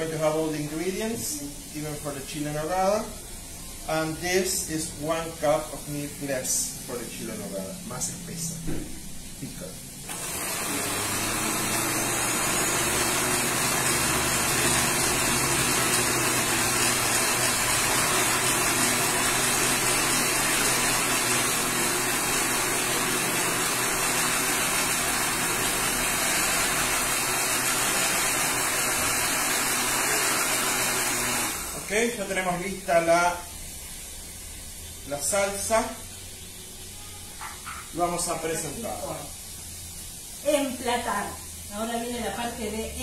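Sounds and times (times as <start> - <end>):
blender running: 10.1 - 32.5.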